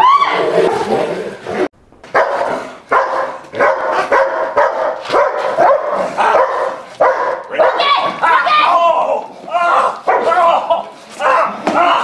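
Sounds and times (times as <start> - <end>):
dog barking: 2.1 - 8.2, 9.7 - 10.4.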